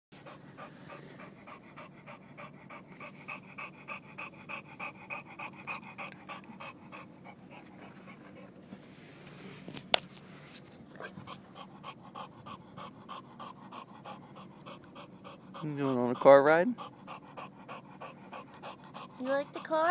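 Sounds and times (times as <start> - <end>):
dog panting hard: 0.2 - 8.8, 10.9 - 19.9.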